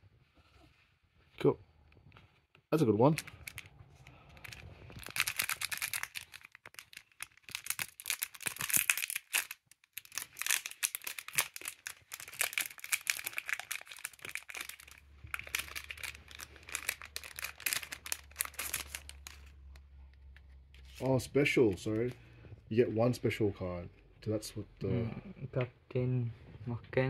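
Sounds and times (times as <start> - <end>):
wrapper tearing and crinkling: 3.0 - 3.7, 4.3 - 21.1.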